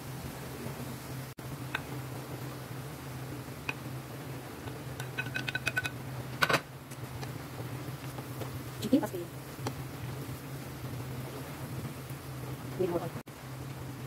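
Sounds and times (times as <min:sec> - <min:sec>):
steady low hum: 0:00.0 - 0:14.0
wooden spoon tapping metal plate: 0:04.6 - 0:06.0.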